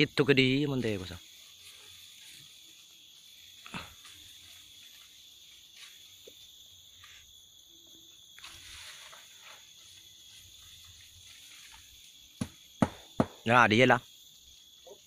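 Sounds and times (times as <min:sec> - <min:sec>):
insects chorus: 0:00.0 - 0:15.0.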